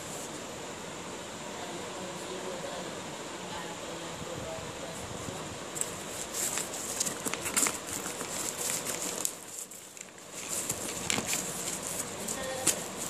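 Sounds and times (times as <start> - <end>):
plastic film crinkling: 5.8 - 13.0.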